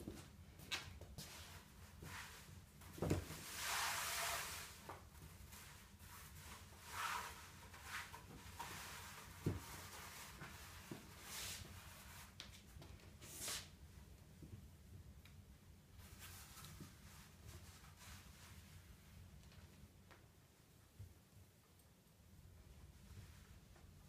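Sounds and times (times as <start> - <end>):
fabric rustling and swishing: 1.2 - 12.4.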